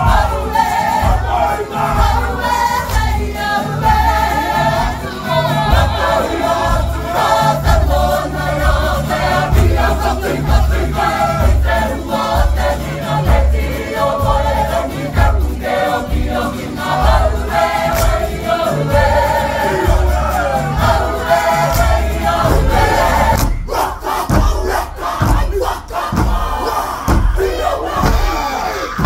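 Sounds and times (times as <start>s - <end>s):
group of voices singing: 0.0s - 29.0s
steady low beat: 19.8s - 27.8s.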